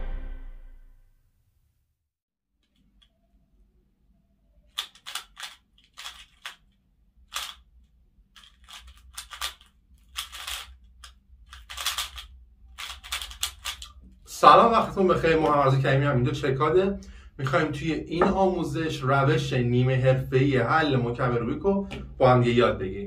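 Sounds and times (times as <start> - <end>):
puzzle cube plastic clicks: 4.6 - 14.2.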